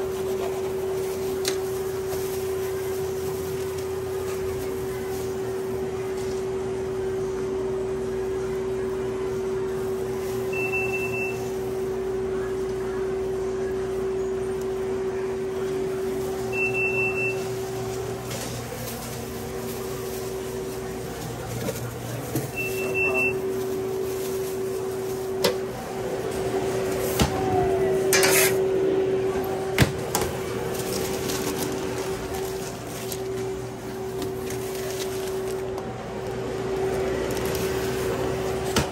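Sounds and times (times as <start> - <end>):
restaurant equipment hum: 0.0 - 38.9
electronic appliance beep: 10.4 - 11.6, 16.5 - 17.7, 22.5 - 23.5.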